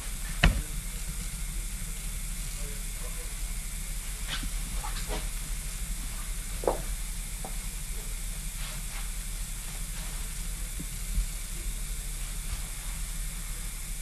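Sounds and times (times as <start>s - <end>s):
camcorder hiss and hum: 0.0s - 14.0s
short knock: 0.4s - 0.7s.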